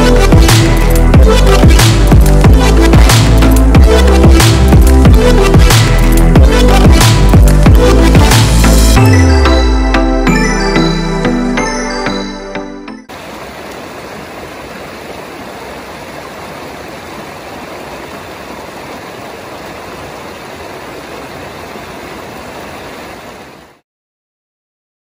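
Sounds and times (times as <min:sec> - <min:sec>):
stream splashing over boulders: 0:00.0 - 0:08.8, 0:13.1 - 0:23.8
background music: 0:00.0 - 0:13.1.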